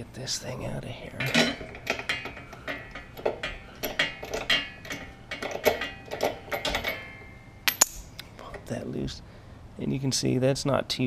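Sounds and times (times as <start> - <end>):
ratchet clicking and clinking: 1.1 - 8.1.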